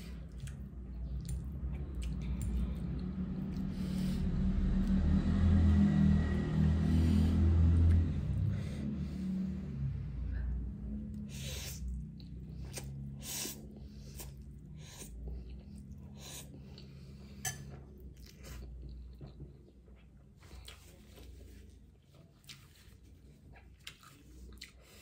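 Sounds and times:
chewing and slurping noodles: 0:11.3 - 0:25.0.

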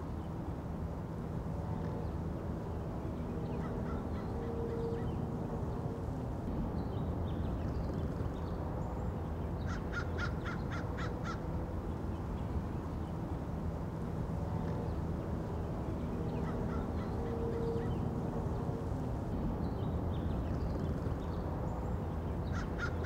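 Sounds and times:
crow calling: 0:03.6 - 0:04.8, 0:09.6 - 0:11.4, 0:16.4 - 0:17.9, 0:22.5 - 0:23.0.

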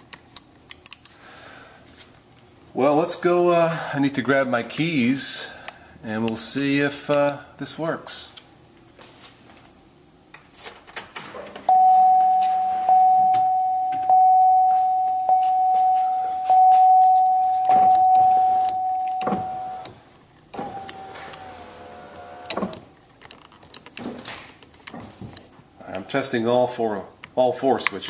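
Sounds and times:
car warning chime dinging: 0:11.7 - 0:20.0
power window motor: 0:19.2 - 0:22.9.

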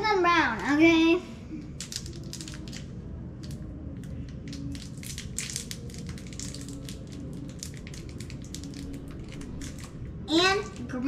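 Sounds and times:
plastic wrapper crackling: 0:01.8 - 0:03.6, 0:04.3 - 0:10.0.

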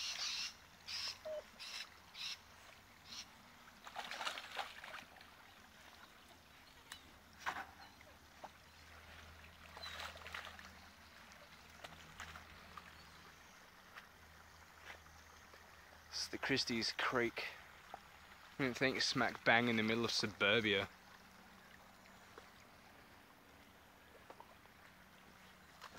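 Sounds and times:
dog splashing in water: 0:03.8 - 0:06.0, 0:08.4 - 0:12.9.

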